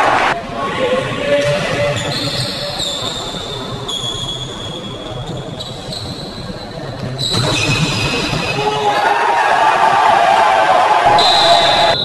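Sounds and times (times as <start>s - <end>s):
sports hall hum: 0.0s - 12.0s
faint high tones: 11.1s - 12.0s.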